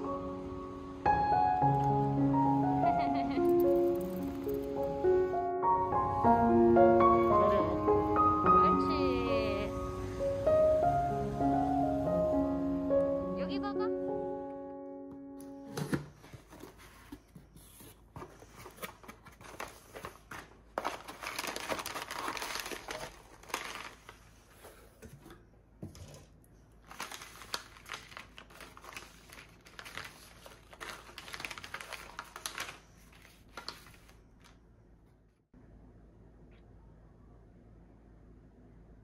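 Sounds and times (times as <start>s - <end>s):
plastic packaging crinkling and tearing: 18.2s - 24.6s, 26.8s - 34.6s.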